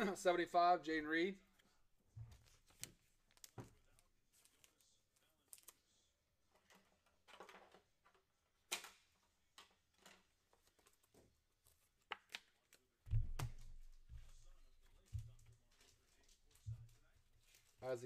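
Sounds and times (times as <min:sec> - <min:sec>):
trading cards clicking and rustling: 0:10.0 - 0:18.0.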